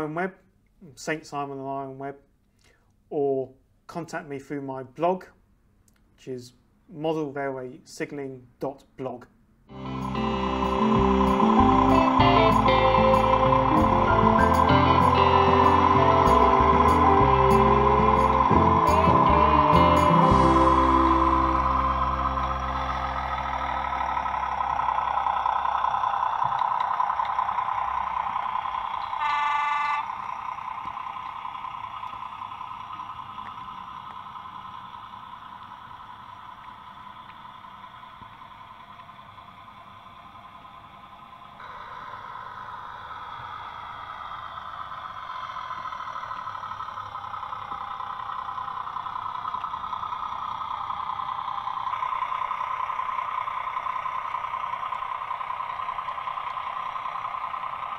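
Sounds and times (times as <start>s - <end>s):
model diesel locomotive running: 9.7s - 57.9s
locomotive horn toot: 29.0s - 30.5s.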